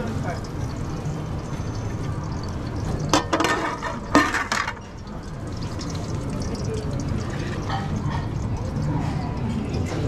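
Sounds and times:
cookware clanking and rattling: 3.0 - 5.0, 7.4 - 10.0.

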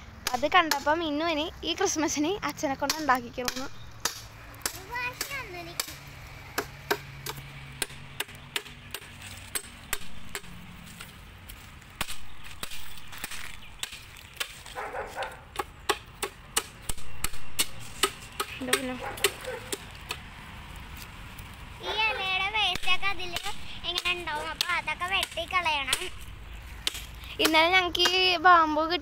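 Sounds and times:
machete chopping bamboo: 0.2 - 1.0, 2.8 - 11.1, 12.0 - 14.8, 15.5 - 20.3, 22.7 - 28.2.

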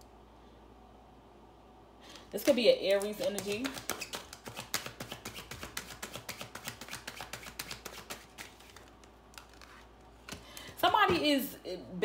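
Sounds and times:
cards being shuffled: 2.4 - 10.8.

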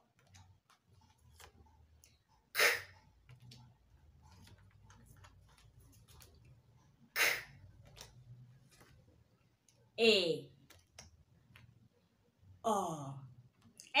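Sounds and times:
paper flashcards rustling: 0.1 - 2.2, 3.0 - 9.4.

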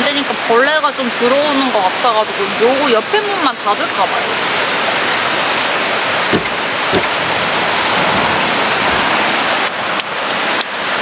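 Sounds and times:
running water rushing: 0.1 - 11.0
wooden panel knocks: 6.3 - 7.2.

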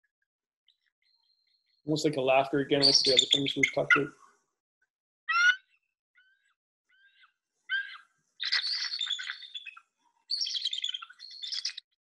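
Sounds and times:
eagle whistled calls: 2.8 - 4.2, 5.3 - 5.7, 7.1 - 11.9.

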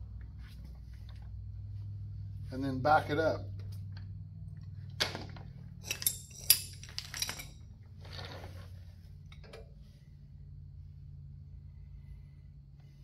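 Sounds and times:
steady low hum: 0.0 - 13.0
metallic clinks of hand tools: 5.8 - 7.6.

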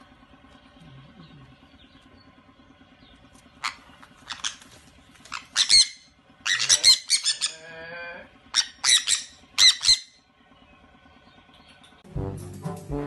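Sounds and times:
faint steady hum: 0.0 - 13.0
parrots screeching: 3.6 - 7.7, 8.5 - 10.2.

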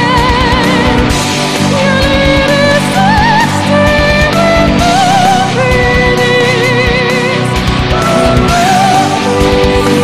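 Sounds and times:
rock band music: 0.0 - 10.0
steady drum beat: 0.0 - 10.0.

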